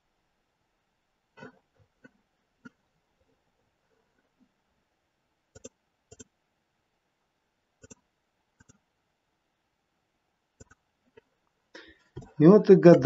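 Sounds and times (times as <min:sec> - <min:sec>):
computer mouse clicking: 0:05.5 - 0:06.3, 0:07.8 - 0:08.0, 0:08.6 - 0:08.8, 0:10.6 - 0:11.3.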